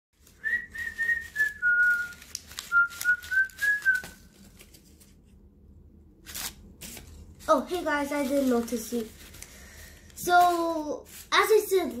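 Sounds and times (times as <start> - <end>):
person whistling a tune: 0.4 - 4.2.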